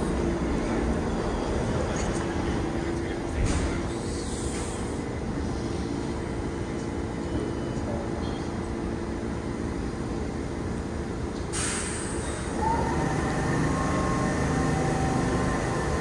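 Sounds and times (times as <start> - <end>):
subway train motors humming: 0.0 - 16.0
air hissing from train: 3.8 - 6.3, 11.5 - 16.0.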